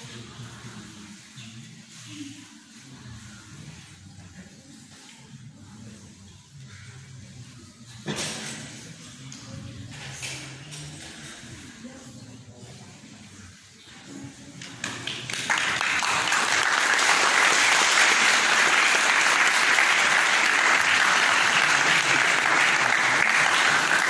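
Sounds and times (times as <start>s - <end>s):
audience applauding: 14.7s - 24.0s.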